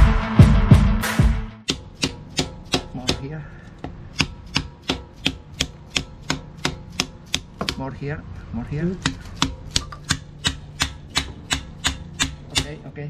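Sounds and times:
hammer tapping on wooden block: 0:01.7 - 0:07.9, 0:09.0 - 0:12.8.

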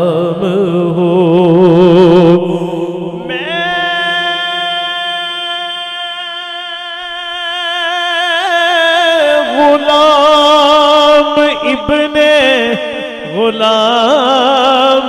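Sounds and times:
man singing over a loudspeaker: 0:00.0 - 0:15.0.

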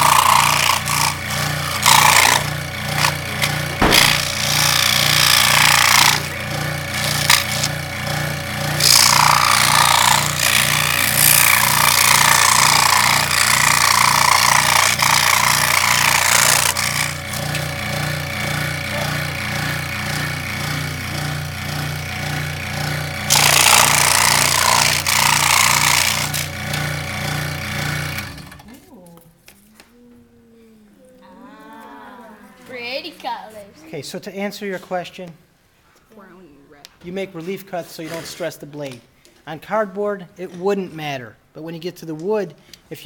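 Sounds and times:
saw blade rasping through cardboard: 0:00.0 - 0:07.9, 0:08.6 - 0:21.4, 0:22.8 - 0:26.8
scroll saw running: 0:00.0 - 0:28.7.

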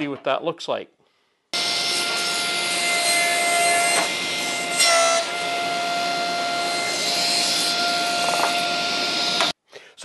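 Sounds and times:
table saw cutting: 0:01.6 - 0:09.6.

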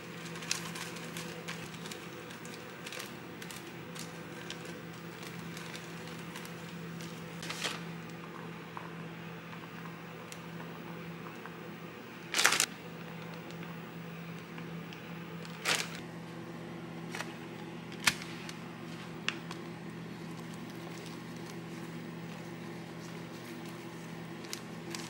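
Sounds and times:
food handling rustles: 0:00.0 - 0:07.9, 0:15.4 - 0:16.0, 0:17.1 - 0:25.0.

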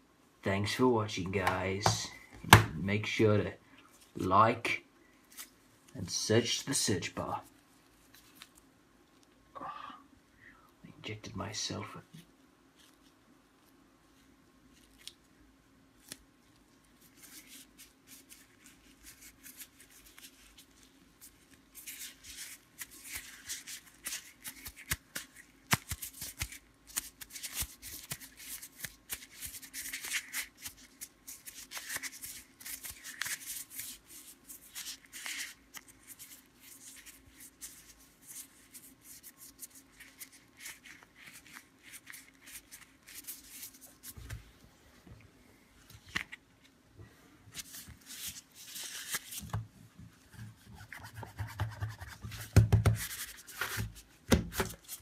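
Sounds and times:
plastic glove crinkling: 0:05.2 - 0:09.4, 0:12.7 - 0:44.3, 0:47.5 - 0:49.6.

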